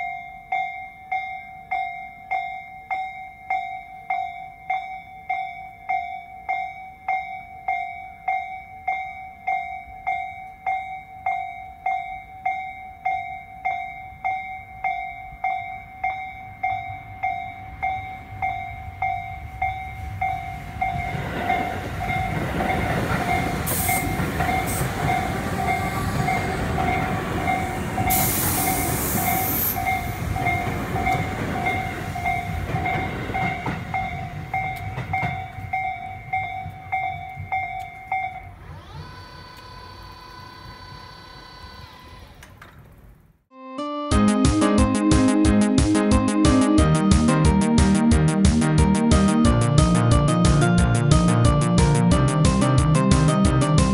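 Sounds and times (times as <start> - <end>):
level crossing bell ringing: 0.0 - 38.6
electric train rumbling past: 5.8 - 43.4, 44.5 - 53.9.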